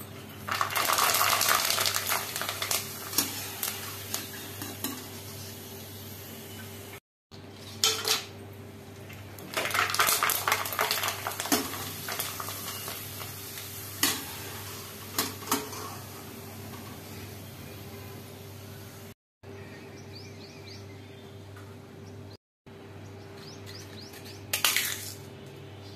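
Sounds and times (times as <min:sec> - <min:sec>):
oil sizzling: 0:00.3 - 0:07.0, 0:07.6 - 0:19.2.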